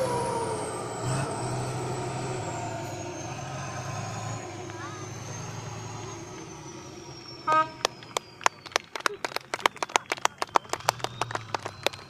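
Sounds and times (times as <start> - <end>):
truck engine running: 0.0 - 12.0
truck horn toot: 7.4 - 8.6
rapid hand clapping: 7.8 - 12.0.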